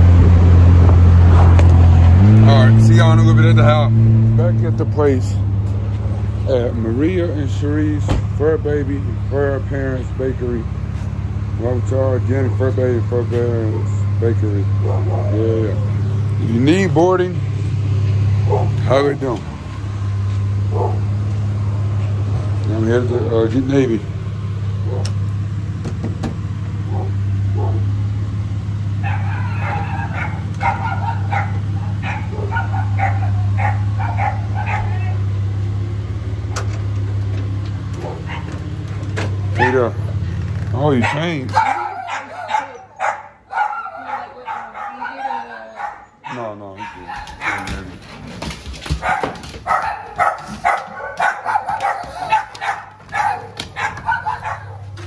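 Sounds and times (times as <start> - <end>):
dog barking and yipping: 14.7 - 15.4, 18.4 - 18.9, 20.7 - 21.2, 24.8 - 25.2, 26.8 - 28.0, 29.0 - 35.4, 38.0 - 38.7, 39.4 - 40.2, 40.9 - 55.0.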